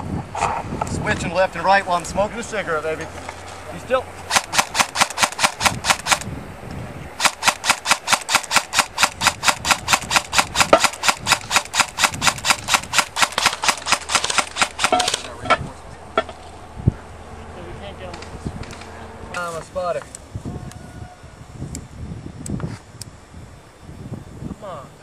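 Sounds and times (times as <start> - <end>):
airsoft rifle rapid fire: 4.3 - 6.3, 7.2 - 15.3.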